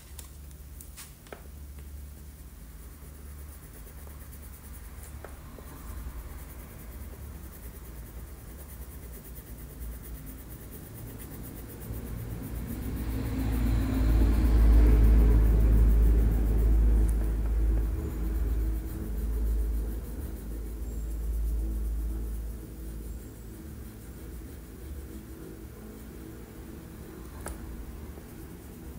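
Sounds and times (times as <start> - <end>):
passing vehicle rumble: 12.1 - 22.8.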